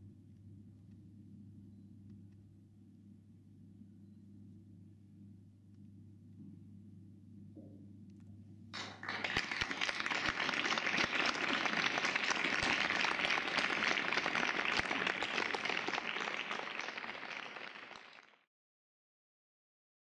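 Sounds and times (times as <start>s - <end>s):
audience applauding: 8.8s - 18.5s.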